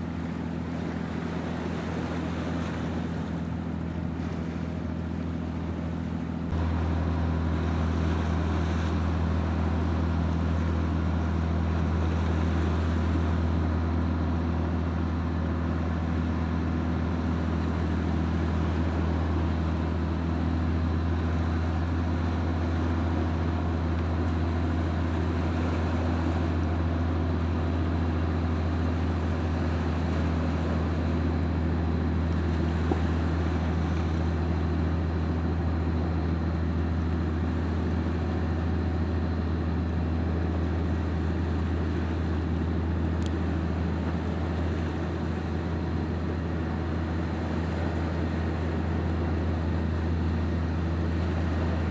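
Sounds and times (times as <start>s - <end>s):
boat engine droning: 0.0s - 51.9s
steady humming tones: 0.0s - 51.9s.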